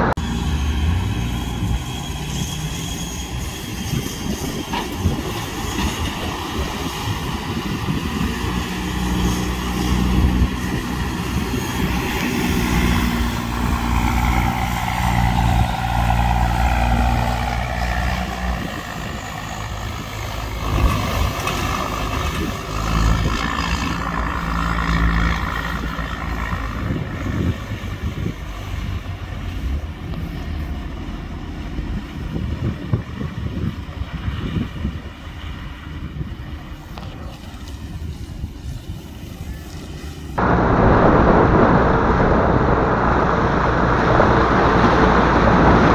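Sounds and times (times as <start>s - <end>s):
diesel truck engine revving: 40.4s - 45.9s
engine whine dropping in pitch: 40.4s - 45.9s.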